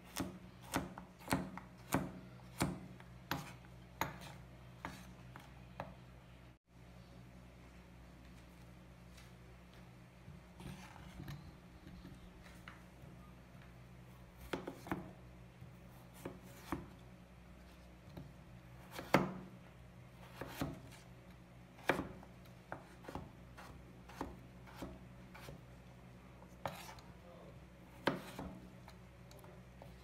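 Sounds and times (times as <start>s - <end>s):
knife chopping on wooden board: 0.1s - 5.9s, 14.4s - 15.2s, 16.2s - 16.9s, 18.8s - 19.5s, 20.2s - 21.0s, 21.8s - 25.6s, 26.6s - 27.0s, 27.9s - 29.9s
faint low hum: 2.0s - 30.0s
soft handling sounds: 7.6s - 13.8s.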